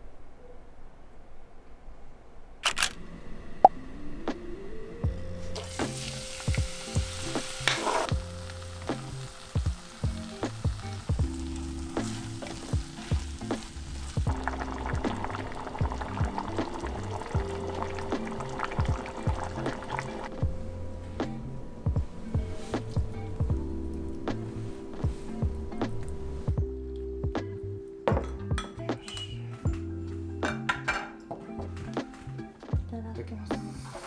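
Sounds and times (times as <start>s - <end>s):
soft background music: 3.2s - 34.0s
vegetables sizzling in a pot: 5.6s - 20.3s.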